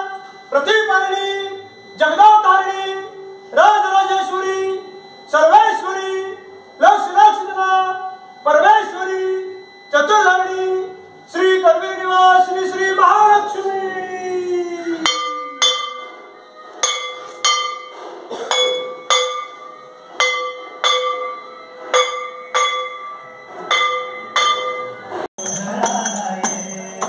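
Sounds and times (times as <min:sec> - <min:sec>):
man chanting: 0:00.0 - 0:15.4
temple bell ringing: 0:11.3 - 0:27.0.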